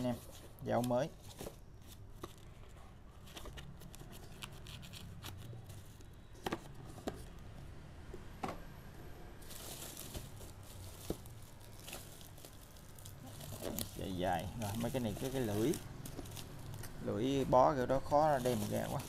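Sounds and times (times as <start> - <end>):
bubble wrap crinkling: 9.4 - 19.0.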